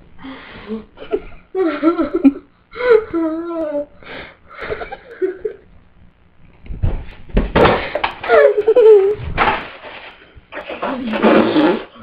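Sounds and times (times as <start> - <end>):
girl whimpering moans: 2.8 - 4.0.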